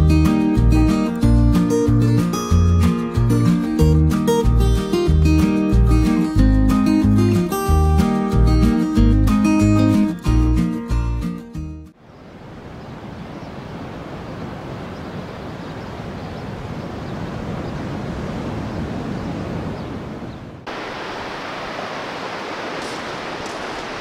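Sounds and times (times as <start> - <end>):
acoustic guitar music: 0.0 - 11.9
surf breaking on a beach: 12.5 - 24.0.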